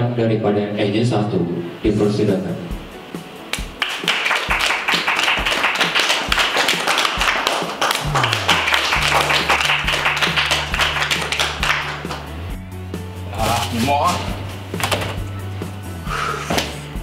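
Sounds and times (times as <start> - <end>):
group clapping: 3.5 - 12.6, 14.7 - 15.2
background music with bass beat: 7.2 - 17.0.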